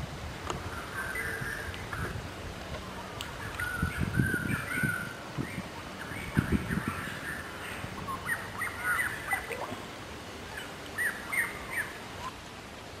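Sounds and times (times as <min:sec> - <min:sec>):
steady outdoor hiss: 0:00.0 - 0:13.0
birds chirping and whistling: 0:00.7 - 0:02.1, 0:03.4 - 0:09.6, 0:10.6 - 0:12.3.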